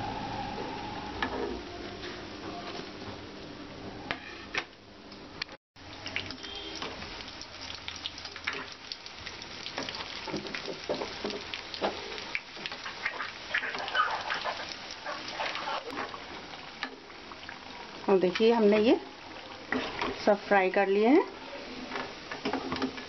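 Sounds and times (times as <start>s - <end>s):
food deep-frying in oil: 5.8s - 23.0s.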